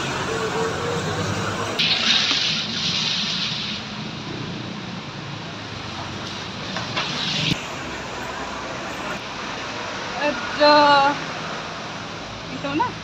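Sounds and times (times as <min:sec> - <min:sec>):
rain hissing: 0:01.3 - 0:04.5, 0:05.5 - 0:10.7.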